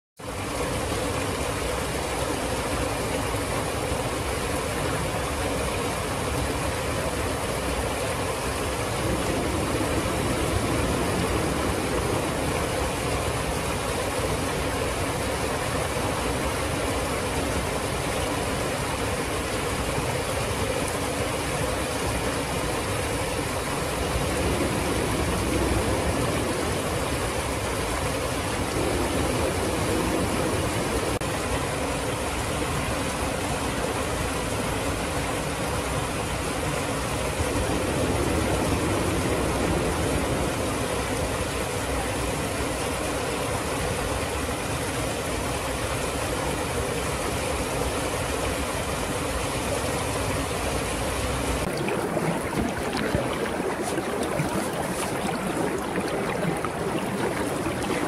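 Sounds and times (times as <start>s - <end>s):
river water rushing over ledge: 51.5s - 58.0s.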